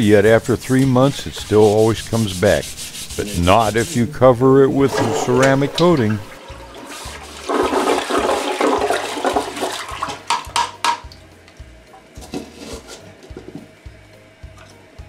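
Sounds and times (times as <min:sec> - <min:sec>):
toilet flushing: 0:02.8 - 0:10.8.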